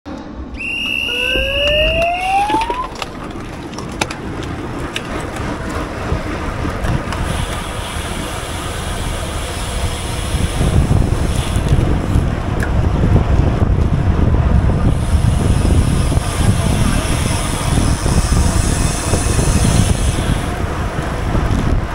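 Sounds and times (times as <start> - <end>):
rising tone: 0.1 - 3.3
low road rumble: 0.1 - 21.9
wind rushing over microphone: 0.1 - 21.9
high electronic tone: 0.6 - 3.0.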